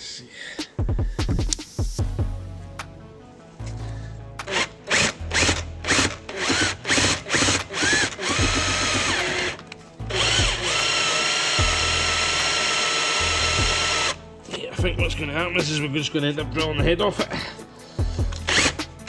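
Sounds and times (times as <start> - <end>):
cordless drill whining: 4.4 - 14.2, 18.3 - 18.8.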